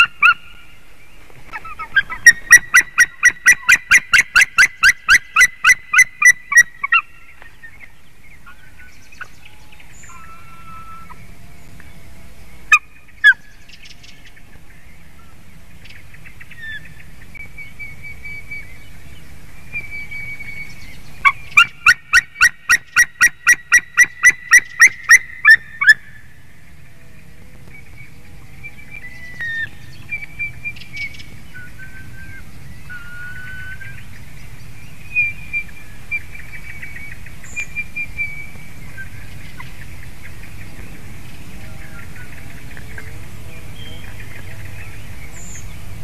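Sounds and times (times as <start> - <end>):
eagle yelping calls: 0.0 - 0.7, 1.5 - 11.4, 12.7 - 14.2, 21.2 - 26.3, 27.8 - 34.2.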